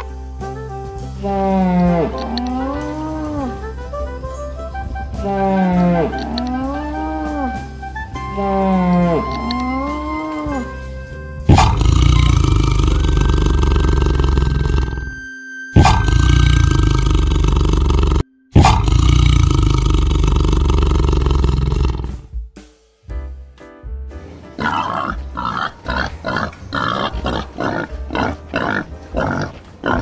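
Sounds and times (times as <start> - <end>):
light background music: 0.0 - 30.0
tiger roaring: 1.2 - 3.6, 5.4 - 7.5, 11.5 - 15.1, 15.8 - 22.2, 24.6 - 30.0.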